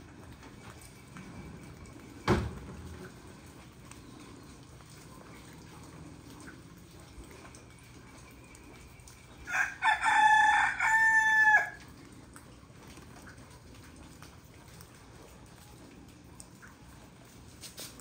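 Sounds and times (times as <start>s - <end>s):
rooster crowing: 9.5s - 11.8s.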